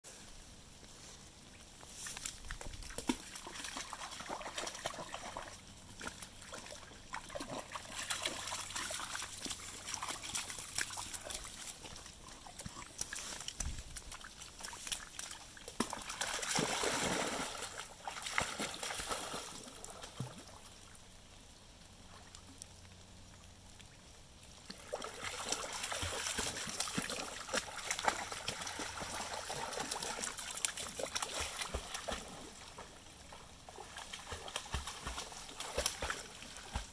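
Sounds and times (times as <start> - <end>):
dog wading and splashing: 2.0 - 20.6, 24.7 - 36.9
floodwater splashing: 2.1 - 20.7, 24.6 - 36.9
ball splashing into water: 15.7 - 20.5.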